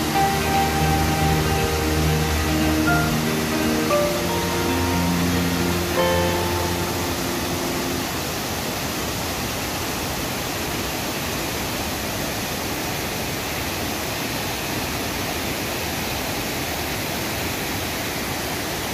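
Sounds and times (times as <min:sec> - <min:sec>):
waterfall rushing: 0:00.0 - 0:18.9.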